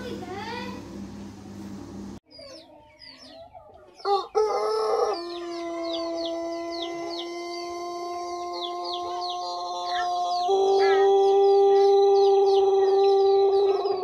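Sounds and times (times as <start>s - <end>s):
small birds chirping: 2.1s - 14.0s
rooster crowing: 4.0s - 14.0s.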